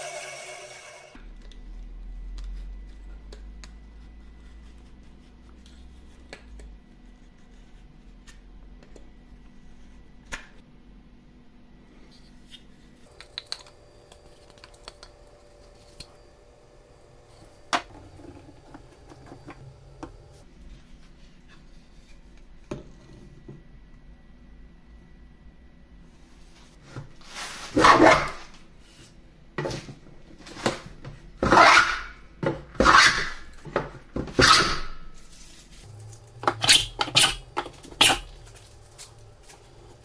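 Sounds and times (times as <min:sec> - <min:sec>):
low hum: 0:35.7 - 0:40.0.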